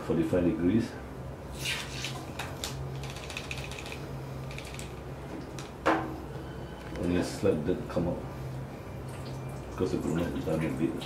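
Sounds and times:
low steady hum: 0:00.0 - 0:11.0
syringe flushing ear canal: 0:01.5 - 0:05.0
sharp clicks and crackles: 0:02.4 - 0:05.7.

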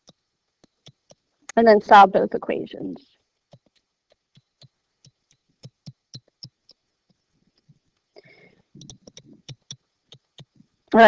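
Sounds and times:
stylus tapping on tablet screen: 0:00.0 - 0:01.3, 0:03.4 - 0:10.6.

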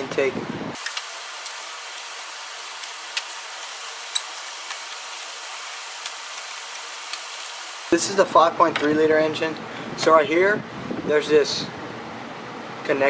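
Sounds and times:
steady hiss: 0:00.8 - 0:08.1.

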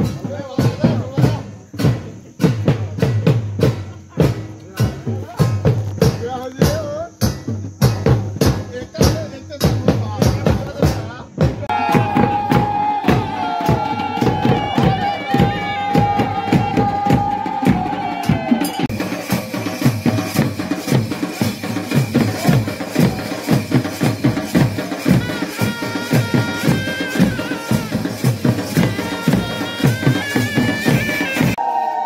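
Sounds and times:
drums in a fast rhythm: 0:00.0 - 0:31.6
higher held tones: 0:11.7 - 0:31.6.

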